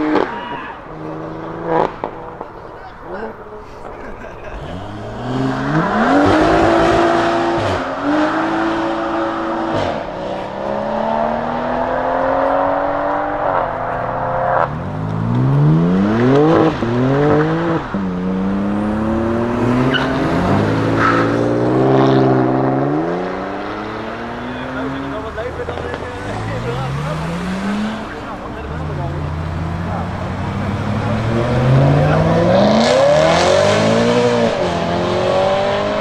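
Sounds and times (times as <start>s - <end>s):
car engine accelerating hard: 0.0s - 2.8s, 4.4s - 36.0s.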